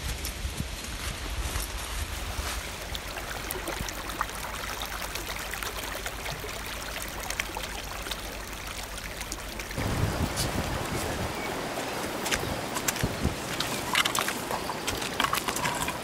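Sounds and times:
water trickling down rock: 2.6 - 10.8, 11.9 - 16.0
water drops splashing: 11.4 - 16.0.

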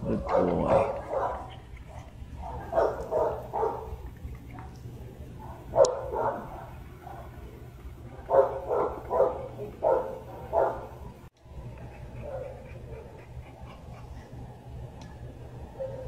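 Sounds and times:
dog barking: 0.1 - 4.0, 5.4 - 7.4, 8.3 - 11.0.

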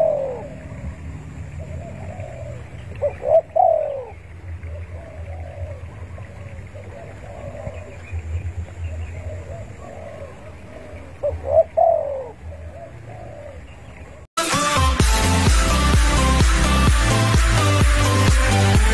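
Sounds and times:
dove cooing: 0.0 - 14.2
low steady rumble: 0.0 - 14.2
electronic music: 14.4 - 18.9.

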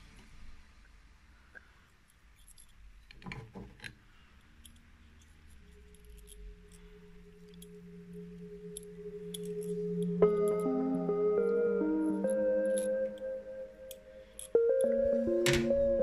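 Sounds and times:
small metal parts clicking: 2.0 - 10.7, 13.9 - 15.6
soft background music: 4.7 - 16.0.

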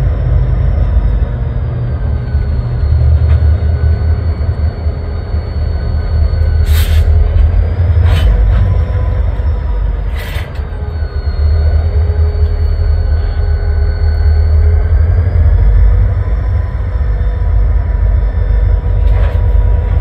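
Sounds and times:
diesel locomotives idling: 0.0 - 20.0.

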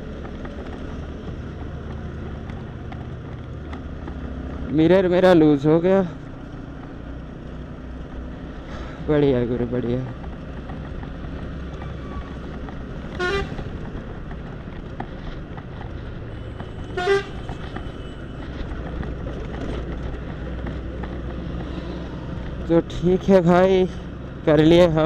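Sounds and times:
motorcycle and road traffic rumble: 0.0 - 25.0
vehicle horn toots: 13.1 - 13.7, 16.8 - 17.6.

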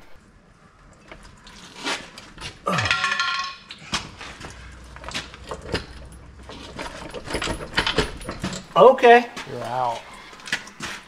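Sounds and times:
metallic clinks and knocks: 2.7 - 8.8.

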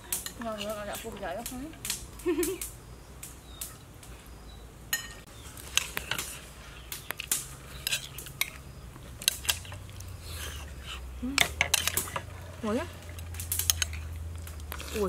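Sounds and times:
spoon clinking on ceramic plates: 4.9 - 5.2.

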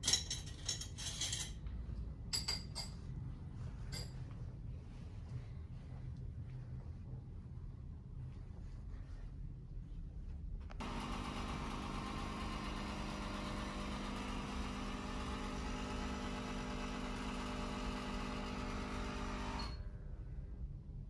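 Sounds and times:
machine hum: 10.7 - 20.2.

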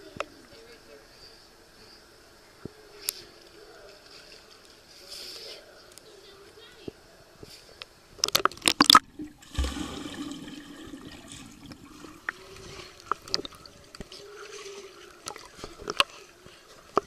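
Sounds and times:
water sloshing and gurgling: 8.2 - 17.0
heavy splash into pool: 9.2 - 12.1.

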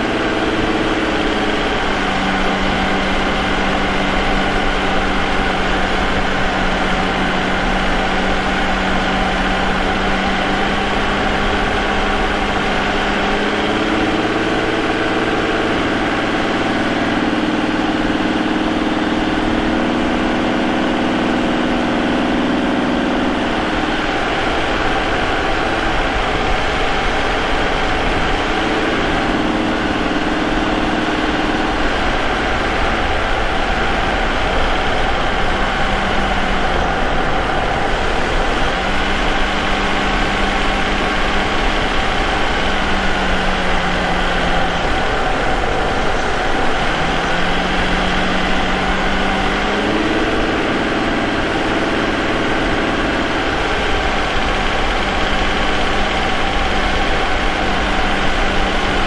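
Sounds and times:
car engine running: 0.0 - 59.0.

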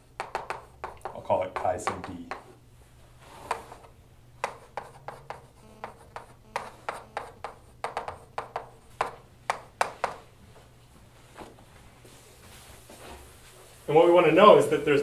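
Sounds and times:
chalk tapping and scratching: 0.0 - 2.6, 3.3 - 10.2.

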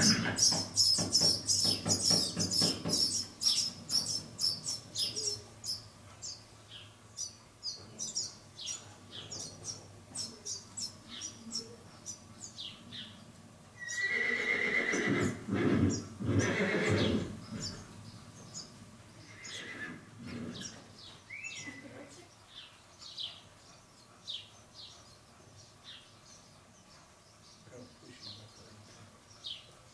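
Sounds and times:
small birds chirping: 0.0 - 29.9
mule colt whinnying: 13.8 - 17.4, 19.3 - 20.6.

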